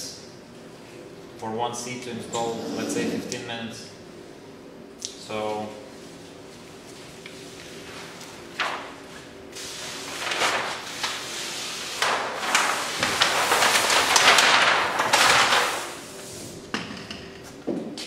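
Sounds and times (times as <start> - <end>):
plastic film crinkling and crackling: 10.0 - 11.3, 11.9 - 16.0.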